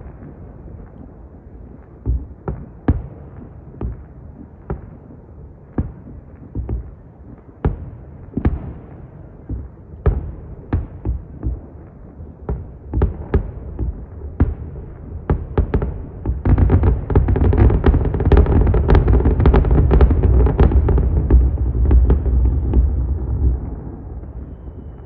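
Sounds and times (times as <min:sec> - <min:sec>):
fireworks bangs: 0:15.3 - 0:24.9
low rumble: 0:19.0 - 0:25.0.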